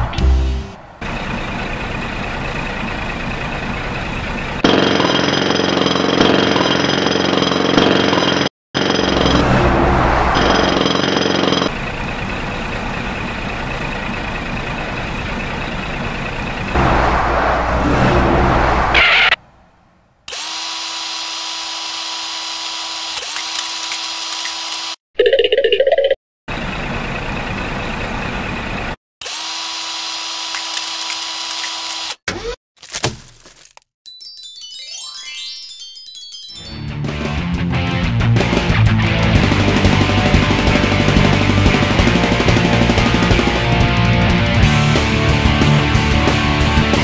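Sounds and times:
truck engine running: 0.0 - 20.2, 26.5 - 29.0, 37.0 - 47.0.

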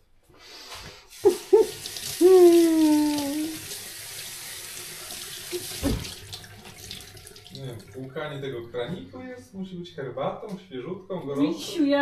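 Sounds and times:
liquid running from a tap: 1.1 - 9.4.

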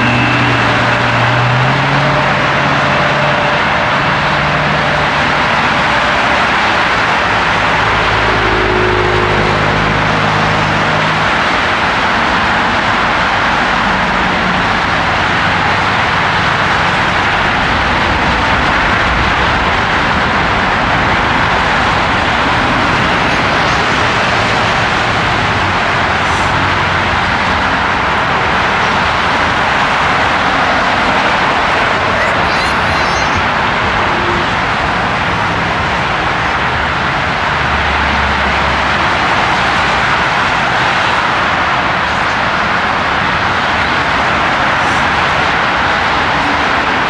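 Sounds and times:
road traffic rushing: 0.0 - 47.0.

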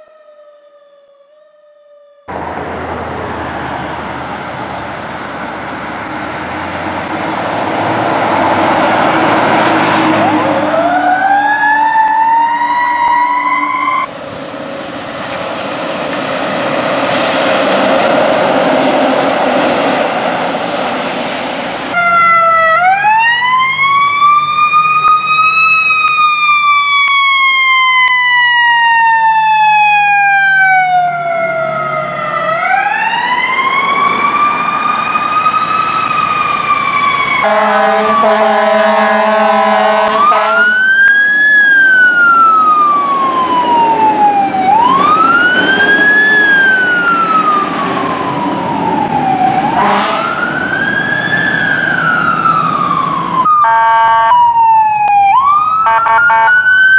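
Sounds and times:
fire truck sirens wailing: 0.0 - 56.9
horn blast: 37.4 - 40.8, 49.7 - 50.4, 53.6 - 54.4.

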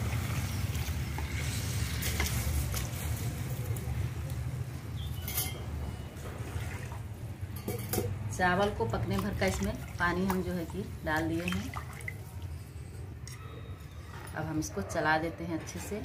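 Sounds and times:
rice and water pouring splashing: 0.0 - 3.3.

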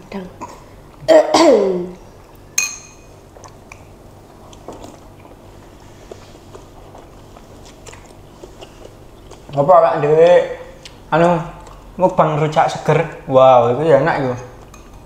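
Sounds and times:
spoon clinking on ceramic bowl: 2.6 - 3.1
chewing and eating: 3.2 - 13.3.

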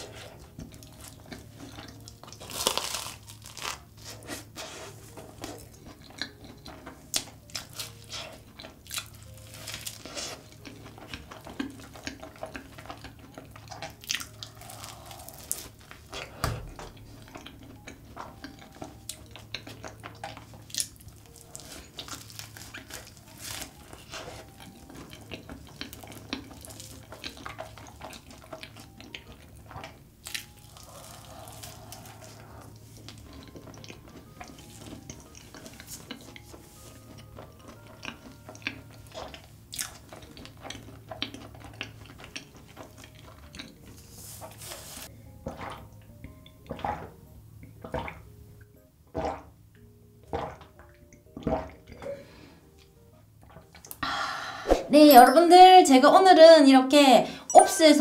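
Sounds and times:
soft wet chewing: 0.0 - 54.0
crunching pastry shell: 0.8 - 4.5, 5.4 - 16.1, 17.7 - 45.1.

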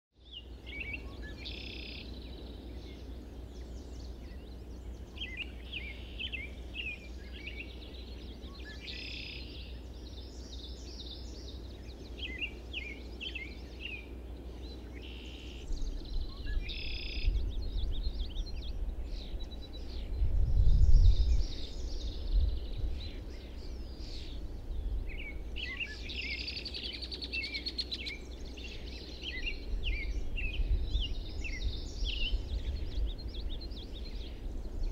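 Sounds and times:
songbirds singing: 0.1 - 34.9
steady low rumble: 15.7 - 26.2.

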